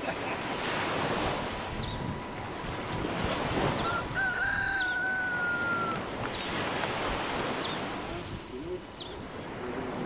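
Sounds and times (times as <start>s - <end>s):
wind on microphone: 0.5s - 10.0s.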